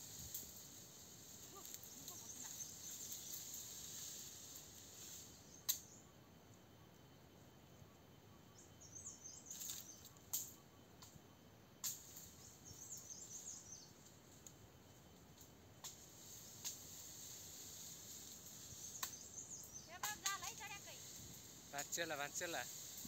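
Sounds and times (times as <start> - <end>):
small bird twittering: 18.6 - 21.6.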